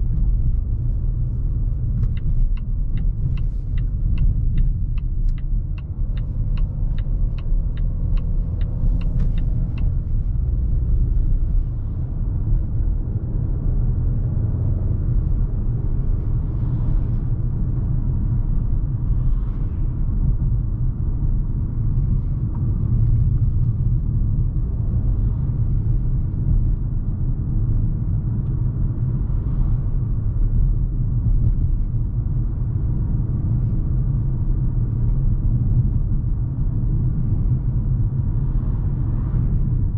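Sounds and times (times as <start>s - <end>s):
turn signal ticking: 0.0s - 11.6s
car interior engine and road rumble: 0.0s - 39.9s.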